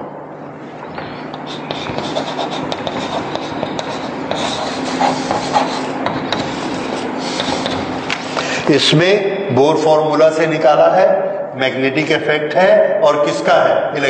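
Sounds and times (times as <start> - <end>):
chalk scratching on blackboard: 1.0 - 8.4.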